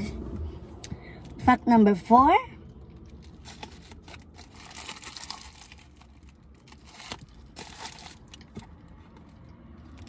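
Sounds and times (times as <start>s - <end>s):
paper wrapper crinkling: 3.1s - 8.5s.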